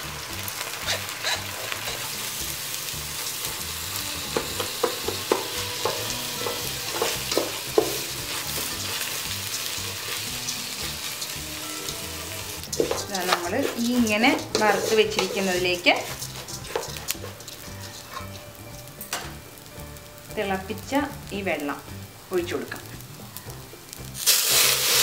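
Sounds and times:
food sizzling in a pot: 0.0 - 25.0
spatula knocking and scraping a pot: 4.3 - 12.0, 12.6 - 19.4.

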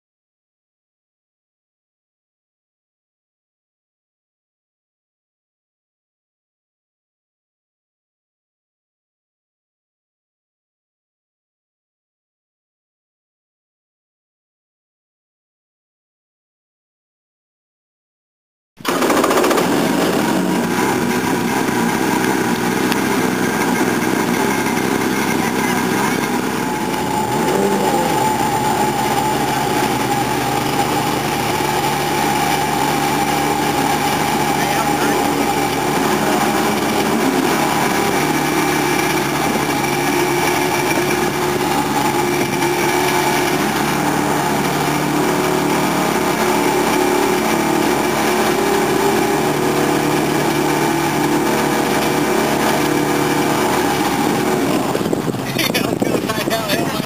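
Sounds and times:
jet pump pushing water: 18.8 - 57.0
jet-ski engine idling: 18.8 - 57.0.

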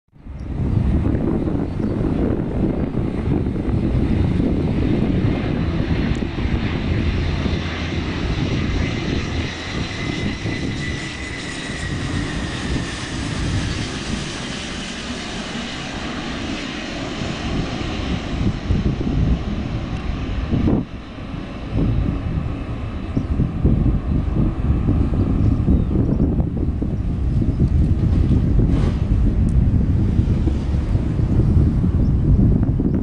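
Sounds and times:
jet engines rumbling and whining: 0.2 - 33.0.

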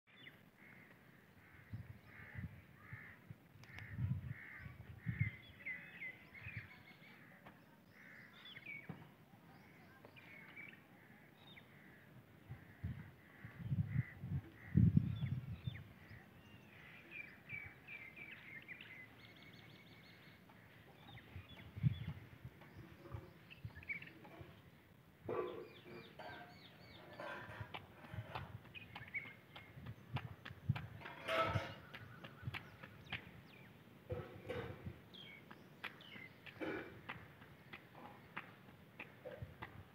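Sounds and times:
birds calling and chirping: 0.1 - 39.9.

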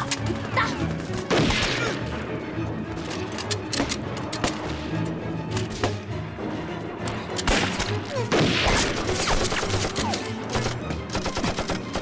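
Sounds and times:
dramatic background music: 0.0 - 12.0
rapid gunfire: 7.5 - 10.0, 10.6 - 12.0.

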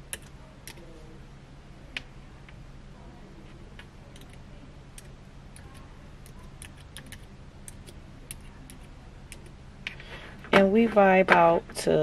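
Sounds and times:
computer keys clicking: 0.0 - 0.9, 3.8 - 4.4, 5.0 - 9.6
low steady hum: 0.0 - 12.0.

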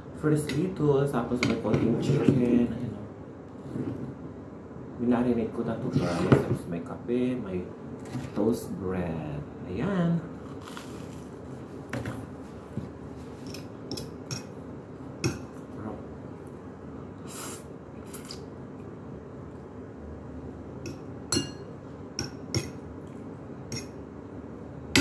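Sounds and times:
fork clinking on ceramic plate: 20.9 - 22.8.

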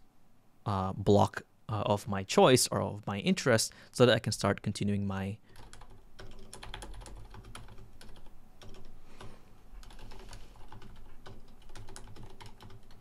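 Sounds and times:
typing on computer keyboard: 5.6 - 13.0.

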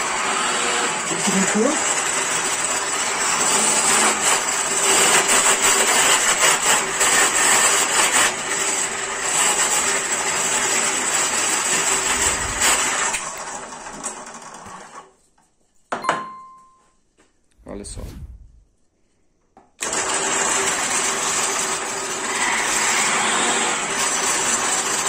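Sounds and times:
drill press boring wood: 0.0 - 15.1, 19.8 - 25.0
motor winding down: 11.8 - 14.5.

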